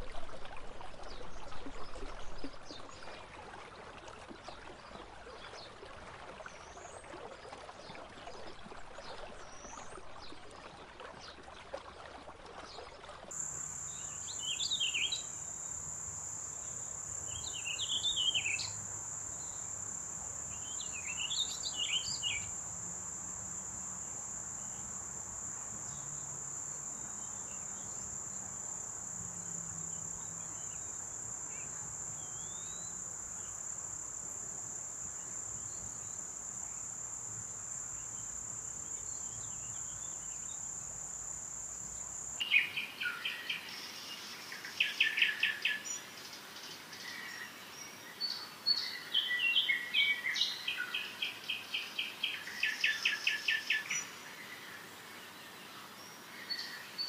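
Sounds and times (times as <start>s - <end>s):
songbird singing: 13.3s - 40.8s, 41.8s - 57.0s.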